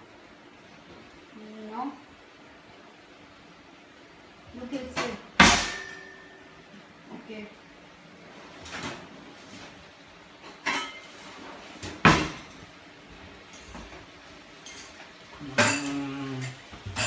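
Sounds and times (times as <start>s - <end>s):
cupboards and drawers opening and shutting: 8.6s - 9.8s, 11.3s - 12.6s.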